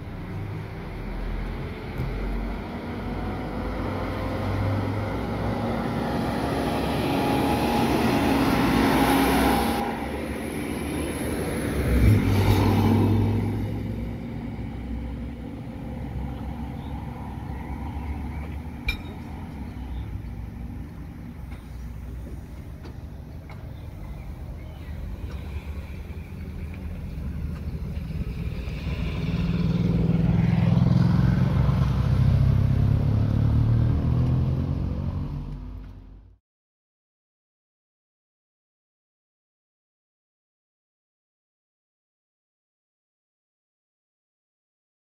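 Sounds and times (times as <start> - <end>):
diesel train passing: 0.0 - 34.1.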